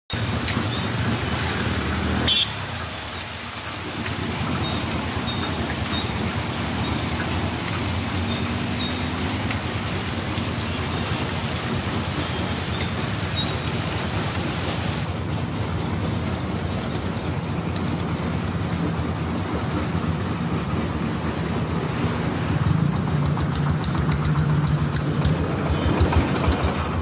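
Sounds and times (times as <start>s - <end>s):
birds chirping: 4.4s - 15.0s.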